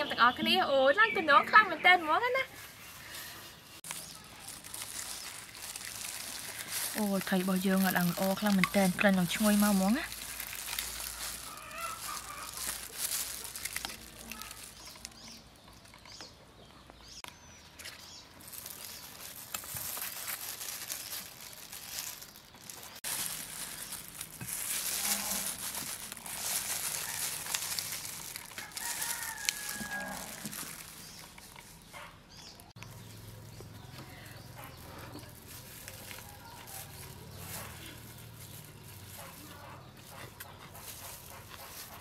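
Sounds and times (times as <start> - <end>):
chickens clucking: 10.8 - 13.6
rooster crowing: 28.5 - 30.6.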